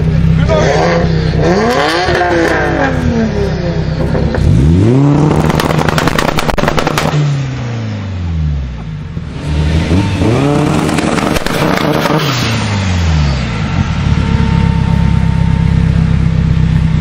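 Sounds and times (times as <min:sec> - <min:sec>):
car engine revving: 0:00.0 - 0:17.0
exhaust crackles and pops: 0:05.1 - 0:07.3, 0:10.8 - 0:12.3.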